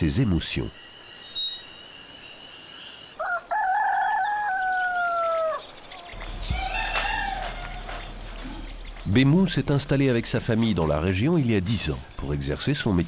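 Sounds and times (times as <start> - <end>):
rooster crowing: 3.2 - 9.1
steady high hiss: 5.8 - 13.0.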